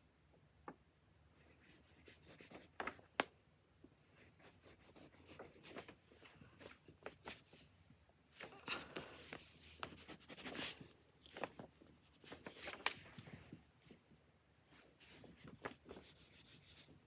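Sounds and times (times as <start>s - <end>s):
pencil scratching on paper: 1.4s - 2.7s, 4.1s - 6.2s, 9.4s - 10.9s, 15.8s - 17.0s.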